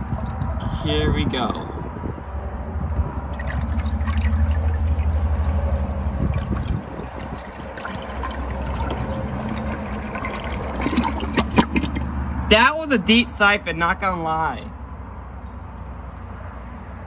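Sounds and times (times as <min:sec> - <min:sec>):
toilet flushing: 0:03.4 - 0:12.1.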